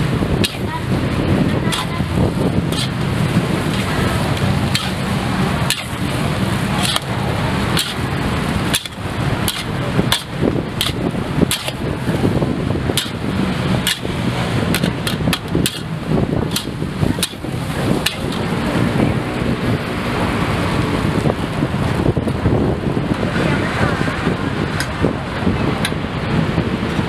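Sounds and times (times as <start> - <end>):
steady rushing noise: 0.0 - 27.0
metal spatula clanking on wok: 5.7 - 6.0.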